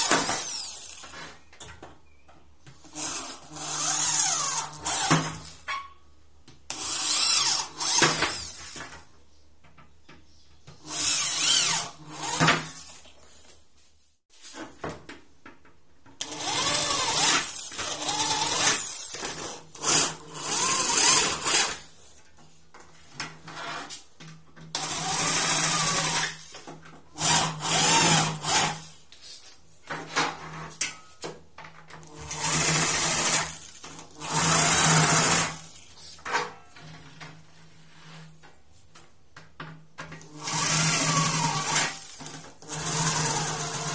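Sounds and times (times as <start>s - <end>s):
electric drill boring through metal: 0.0s - 1.2s, 2.9s - 5.3s, 6.7s - 8.8s, 10.8s - 12.8s, 16.2s - 21.8s, 24.8s - 26.4s, 27.2s - 28.8s, 32.2s - 35.6s, 40.3s - 43.9s.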